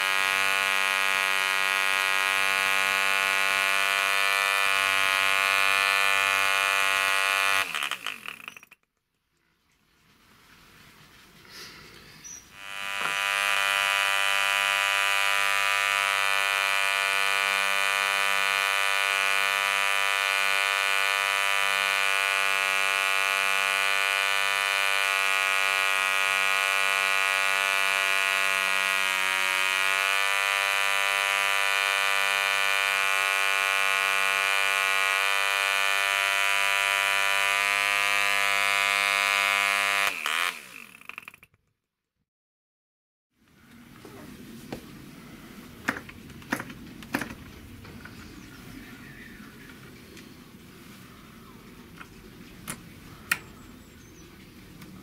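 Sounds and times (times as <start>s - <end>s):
model aircraft engine buzzing: 0.0s - 8.8s, 12.5s - 41.4s.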